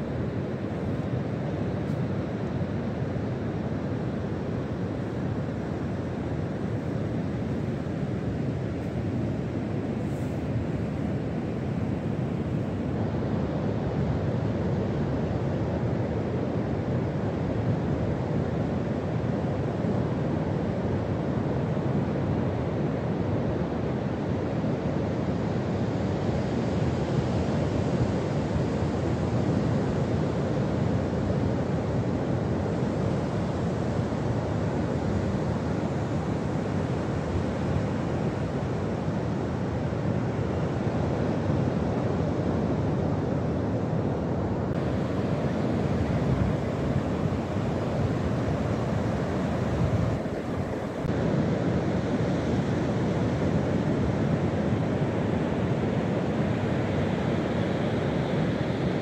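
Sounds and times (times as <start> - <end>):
surf washing up beach: 26.0 - 59.0
wind on microphone: 27.0 - 59.0.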